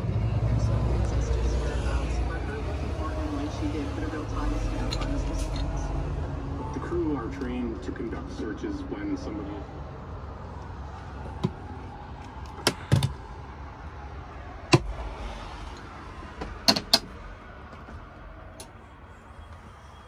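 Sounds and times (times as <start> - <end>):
sharp knocks and clicks: 16.4 - 18.0.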